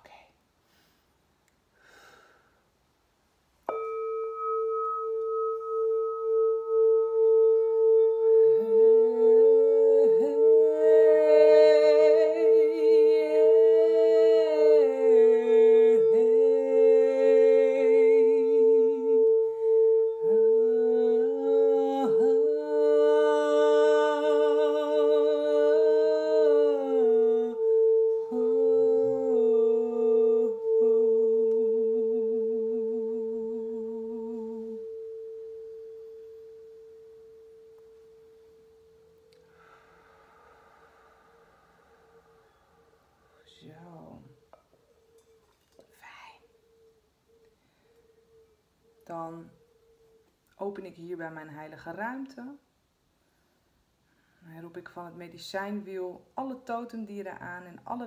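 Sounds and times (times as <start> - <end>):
singing bowl ringing: 3.6 - 45.6
woman humming: 3.7 - 44.8.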